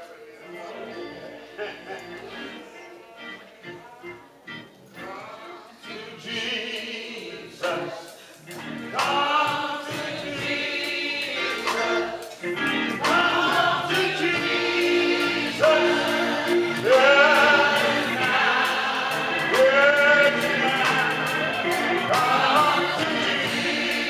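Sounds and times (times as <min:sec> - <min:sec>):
congregation singing a hymn: 0:00.0 - 0:24.0
man's voice leading singing: 0:05.0 - 0:24.0.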